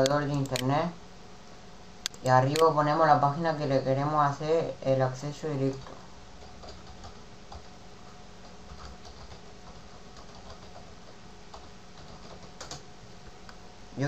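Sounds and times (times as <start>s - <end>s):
computer keyboard clicks: 0.0s - 0.7s, 5.7s - 7.7s, 8.4s - 12.8s.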